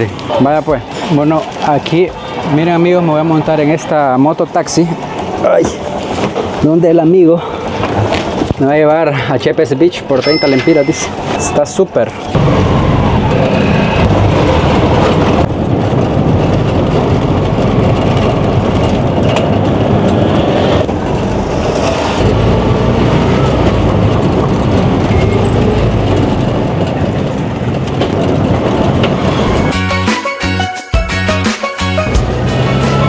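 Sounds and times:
motor rickshaw engine rumble: 0.0 - 30.6, 31.9 - 33.0.

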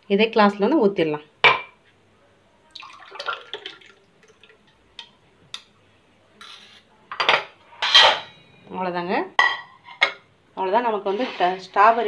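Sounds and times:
liquid splashing and dripping: 2.7 - 5.1.

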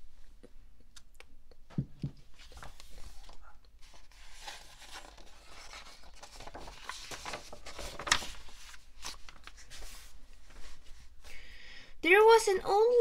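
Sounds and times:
book pages turning and rustling: 2.0 - 11.2
sharp page flap: 4.0 - 9.6.

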